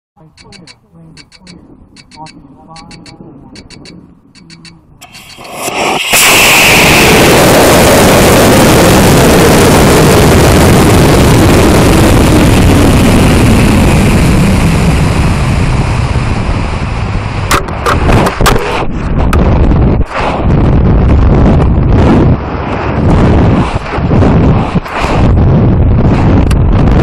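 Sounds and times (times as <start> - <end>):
wind rushing over rocket: 4.9 - 27.0
rocket motor roar: 5.0 - 17.5.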